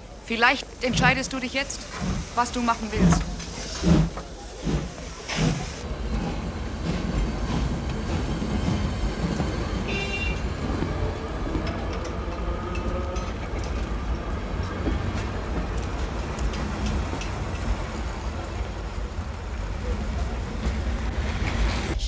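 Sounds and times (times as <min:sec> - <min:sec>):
train carriages rumbling: 0:00.0 - 0:22.0
high train whistle: 0:09.9 - 0:10.5.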